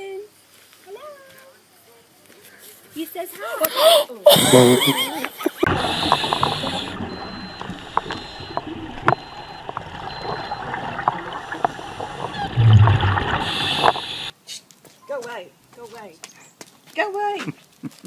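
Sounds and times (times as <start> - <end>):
underwater water noise: 4.4 - 14.3
exhaled bubbles rumbling: 5.6 - 14.3
regulator hissing: 5.6 - 14.3.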